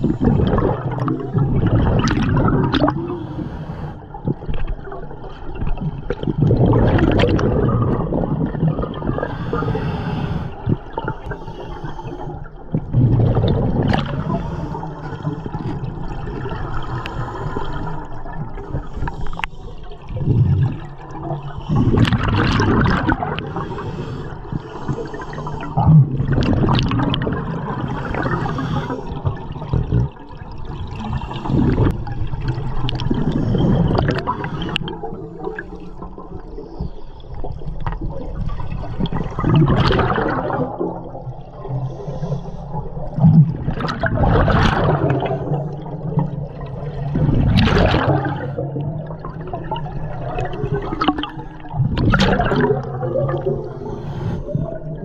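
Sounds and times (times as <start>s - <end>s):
regulator exhaust bubbles gurgling: 0.0s - 3.2s, 4.2s - 9.3s, 20.1s - 23.6s, 25.8s - 35.6s, 37.6s - 41.6s, 42.8s - 53.8s
water hiss and rumble: 0.0s - 55.0s.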